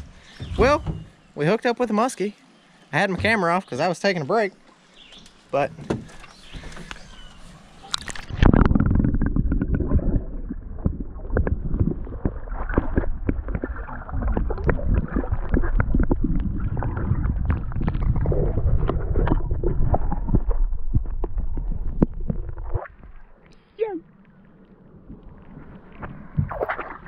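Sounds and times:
underwater rumbling and gurgling: 6.1 - 27.0
water splash: 7.8 - 23.4, 25.1 - 27.0
underwater knocks and bubbles: 7.9 - 23.2, 25.0 - 27.0.

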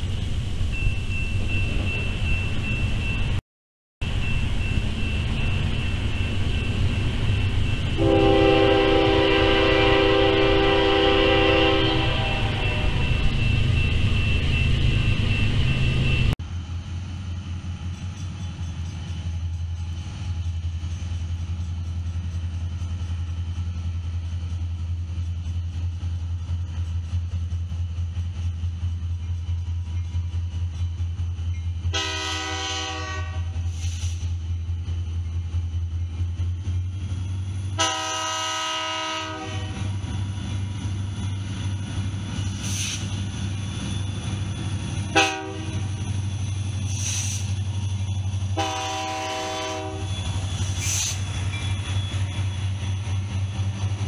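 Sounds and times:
diesel locomotive engine throb: 4.0 - 54.0
locomotive air horn blasts: 8.0 - 13.1, 31.9 - 33.7, 37.8 - 39.9, 45.1 - 45.9, 48.6 - 50.2.

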